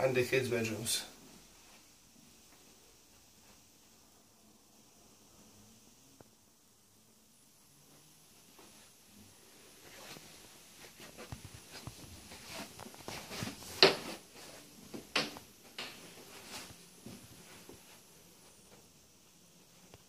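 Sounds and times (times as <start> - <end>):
footsteps: 7.9 - 18.9.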